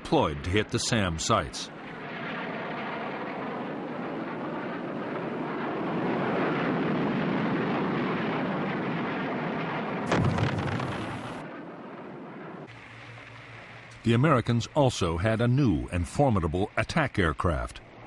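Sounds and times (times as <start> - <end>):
jet aircraft roar: 0.0 - 18.0
sudden blast: 10.1 - 11.4.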